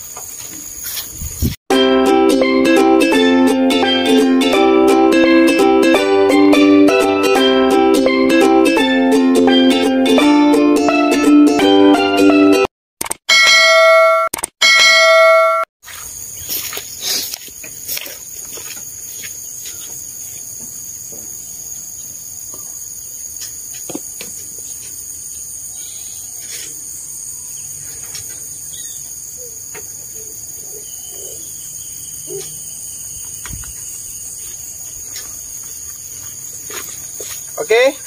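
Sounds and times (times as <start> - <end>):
insects chirping: 0.0 - 1.6, 15.8 - 38.0.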